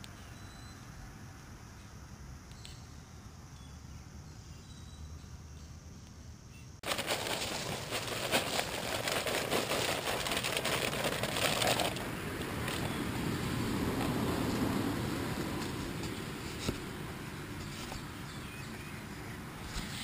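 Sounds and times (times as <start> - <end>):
corn kernels pouring onto ground: 6.8 - 12.1
bag rustling: 6.8 - 13.0.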